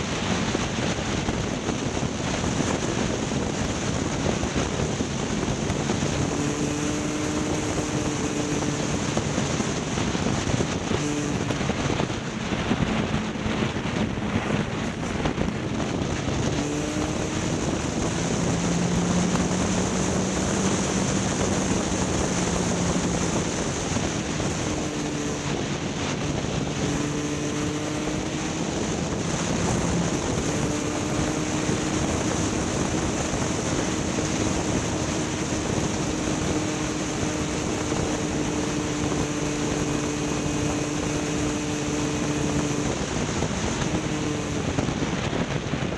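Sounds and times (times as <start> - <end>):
vehicle engine droning: 0.0 - 45.9
wind noise: 0.0 - 45.9.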